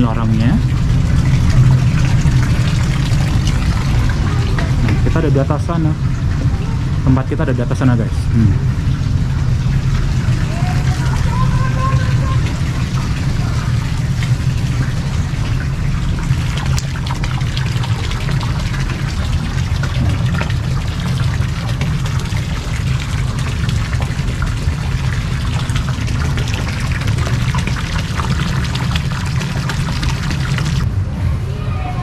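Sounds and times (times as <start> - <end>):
fountain water splashing into pond: 0.0 - 30.8.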